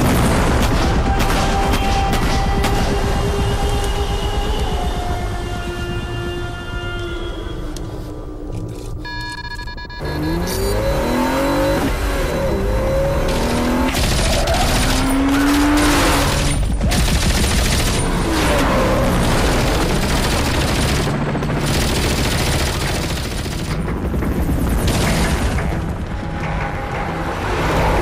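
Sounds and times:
soundtrack music: 10.1s - 28.0s.

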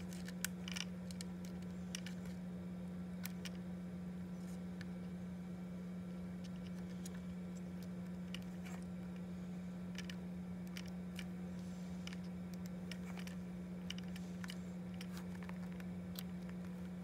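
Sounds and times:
fingers clicking wire connectors: 0.0s - 2.3s, 9.9s - 11.3s, 12.0s - 17.0s
low hum: 0.0s - 17.0s.

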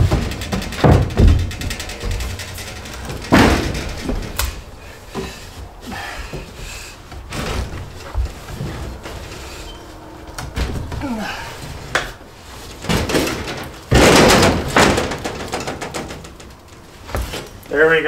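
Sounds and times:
wooden thump: 0.0s - 2.4s, 3.0s - 4.5s
wood knocks and scrapes: 0.0s - 5.5s.

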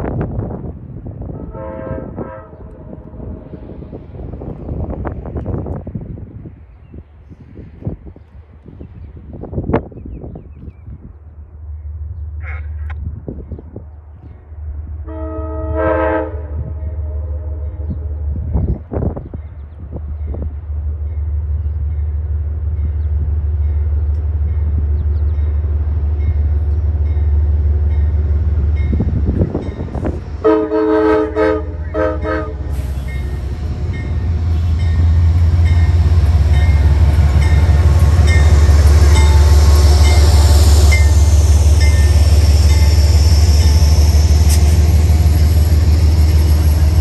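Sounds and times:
train rumble passing: 0.0s - 47.0s
train horn: 1.3s - 3.4s, 15.0s - 18.0s, 30.0s - 36.0s.

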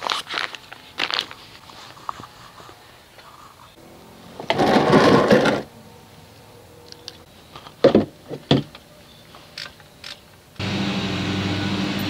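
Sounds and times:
plastic pan scraping on concrete: 4.4s - 5.7s.

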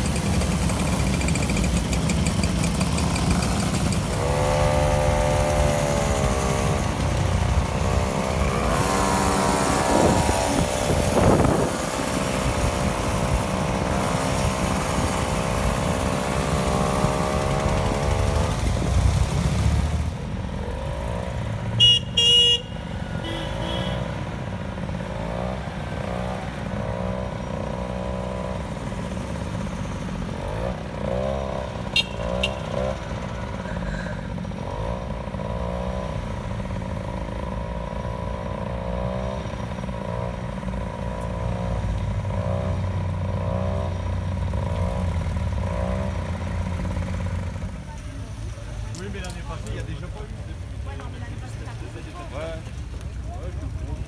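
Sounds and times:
mopeds revving: 0.0s - 54.0s
horn tooting: 21.7s - 24.2s, 31.8s - 33.9s.

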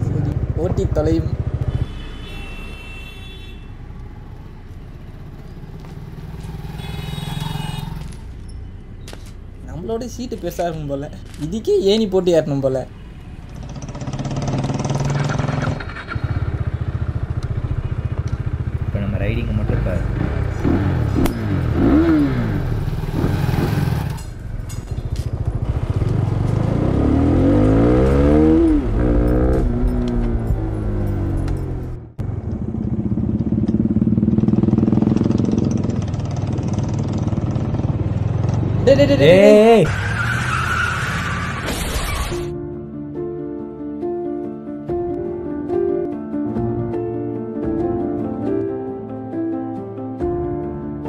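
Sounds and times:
motorbike approaching: 0.0s - 2.0s, 3.8s - 9.4s, 13.3s - 41.3s
motorbike engines humming: 0.0s - 11.4s, 12.9s - 40.0s
scooter passing: 3.9s - 9.5s, 13.1s - 19.1s, 19.8s - 40.4s.

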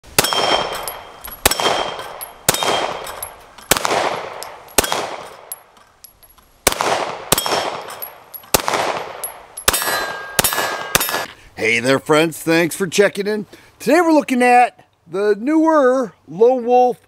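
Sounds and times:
pistol shots echoing: 0.1s - 5.6s, 6.6s - 11.3s
steel targets ringing: 0.1s - 6.4s, 7.3s - 11.3s.

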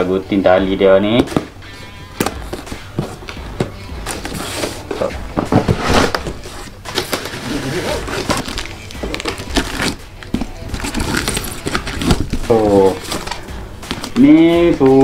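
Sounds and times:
straps rustling and scraping cardboard: 2.5s - 15.0s.

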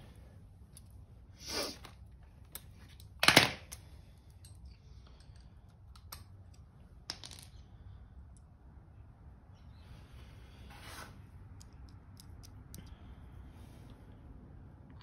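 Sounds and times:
metal tools clicking and clinking: 2.5s - 7.5s.

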